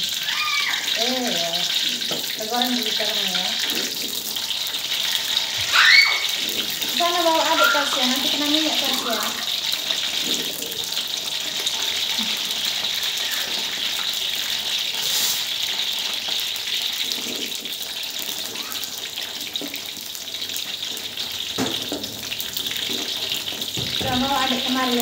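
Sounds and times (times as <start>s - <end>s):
eggplant sizzling in oil: 0.0s - 25.0s
metal spatula knocking wok: 21.5s - 25.0s.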